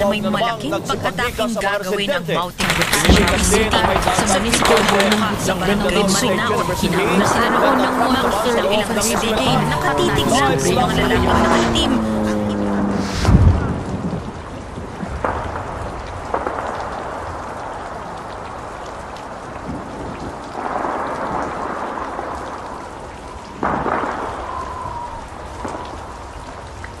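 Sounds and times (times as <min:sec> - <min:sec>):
deep rumbling booms: 0:10.8 - 0:16.7
steady rushing hiss: 0:12.9 - 0:13.9.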